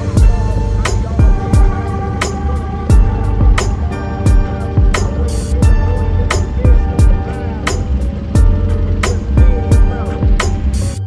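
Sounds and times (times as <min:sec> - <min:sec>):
deep kick drums: 0:00.0 - 0:01.8, 0:02.9 - 0:07.2, 0:08.4 - 0:10.7.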